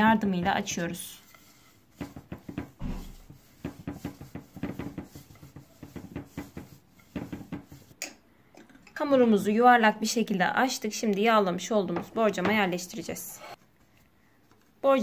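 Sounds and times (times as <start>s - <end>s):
rolling pin knocking on countertop: 2.0s - 7.9s.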